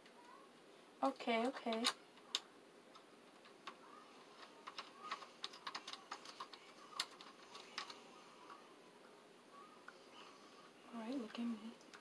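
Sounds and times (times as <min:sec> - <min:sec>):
plastic parts clicking: 0:01.4 - 0:03.8, 0:04.4 - 0:08.0.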